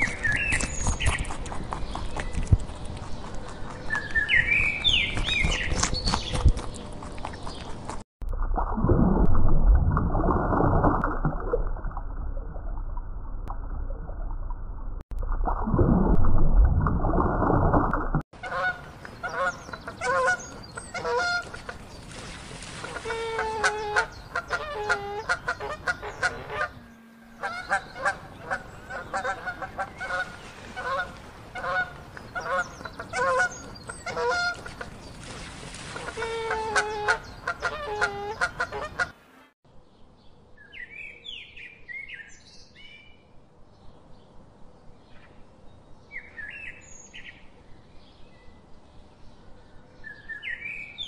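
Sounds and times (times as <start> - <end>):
small birds chirping: 0.0 - 8.0
deep underwater rumble: 8.2 - 18.2
underwater bubbling: 8.2 - 18.2.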